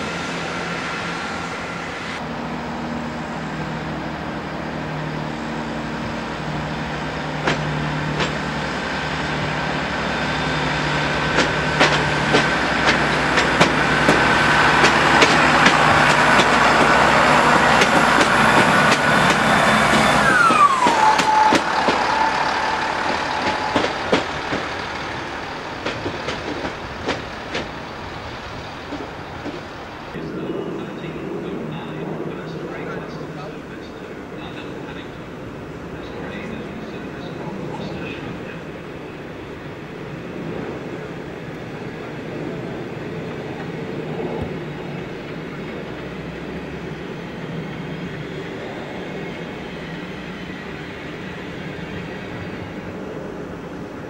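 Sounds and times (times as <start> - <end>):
train passing: 0.0 - 54.0
wheels clicking over rail joints: 7.2 - 30.0.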